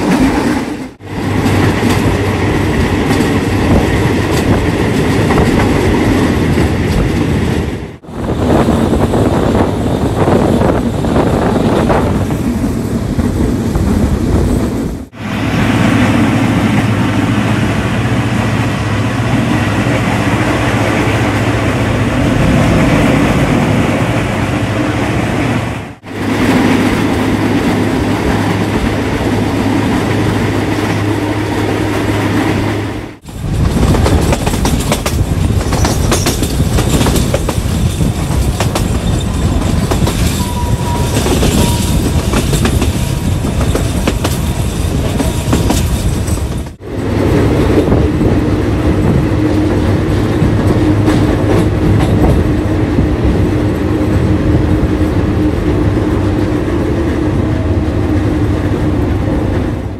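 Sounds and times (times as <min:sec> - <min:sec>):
clickety-clack of rail joints: 0:00.0 - 0:07.8, 0:26.2 - 0:59.9
train wheels rumbling on rail: 0:00.0 - 0:59.9.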